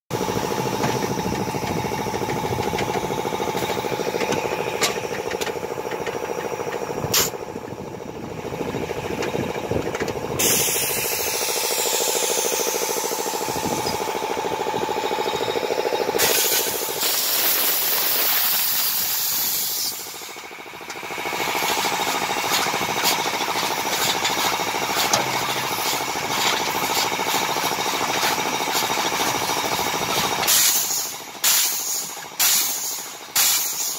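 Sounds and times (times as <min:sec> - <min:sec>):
baling machine hum and rattle: 0:00.1 - 0:33.9
loud hiss: 0:10.4 - 0:13.9, 0:16.2 - 0:20.5, 0:30.5 - 0:33.9.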